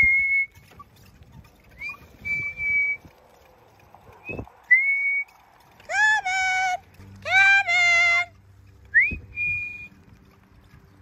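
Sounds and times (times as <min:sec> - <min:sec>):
high sliding whistles: 0:01.8 - 0:03.1.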